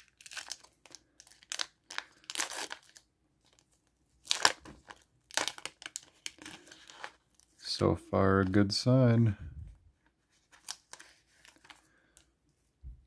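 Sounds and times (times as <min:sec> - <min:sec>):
foil wrapper crinkling and tearing: 0:00.0 - 0:07.6, 0:10.4 - 0:11.9.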